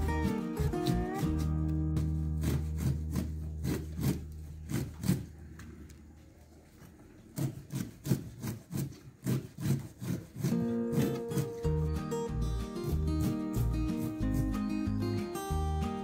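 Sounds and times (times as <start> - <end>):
background music: 0.0 - 3.8, 10.6 - 16.0
chopper cutting leafy greens: 0.0 - 5.8, 6.9 - 16.0.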